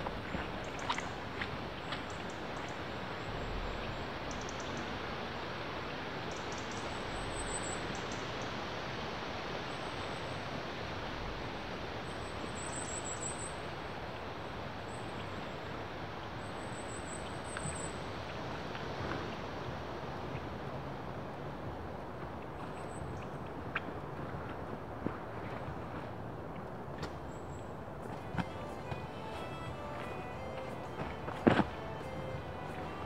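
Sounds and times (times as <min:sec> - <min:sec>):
wind through trees: 0:00.0 - 0:33.0.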